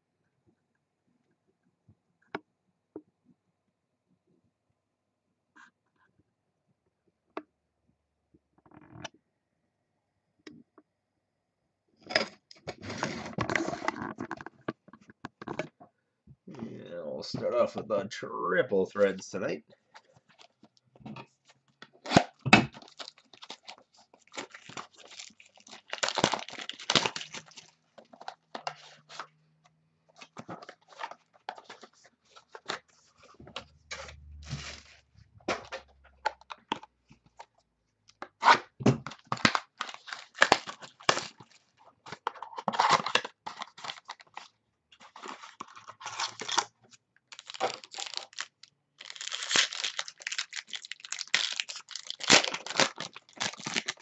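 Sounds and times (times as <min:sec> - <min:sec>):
plastic wrap crinkling: 0:21.9 - 0:29.3, 0:39.0 - 0:46.7, 0:47.3 - 0:54.0
plastic shrink wrap tearing: 0:22.0 - 0:29.2, 0:38.4 - 0:41.6, 0:42.2 - 0:46.7, 0:47.3 - 0:54.0.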